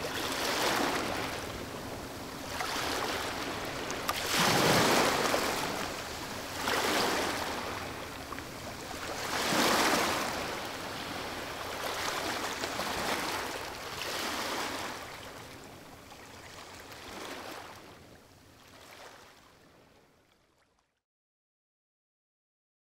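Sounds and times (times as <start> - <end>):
waves washing in: 0.0 - 17.9.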